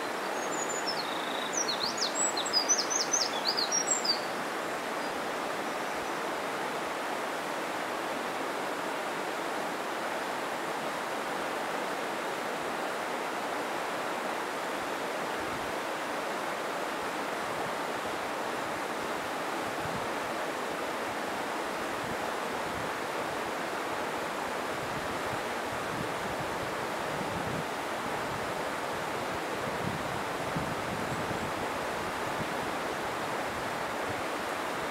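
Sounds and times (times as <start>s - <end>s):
stream water rushing: 0.0s - 34.9s.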